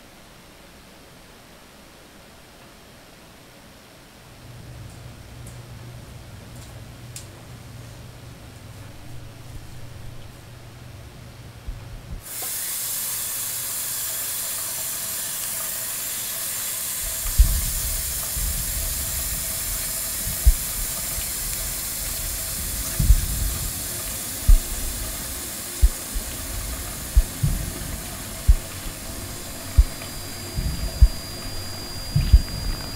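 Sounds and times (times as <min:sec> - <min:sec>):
faucet turned on: 0:12.2 - 0:32.9
tap water running into sink: 0:12.2 - 0:32.9
low dull thumps: 0:17.3 - 0:32.9.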